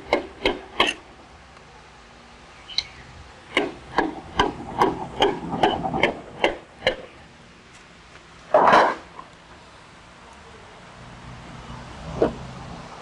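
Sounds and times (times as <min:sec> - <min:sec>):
hand tool tapping on metal: 0:03.5 - 0:07.0.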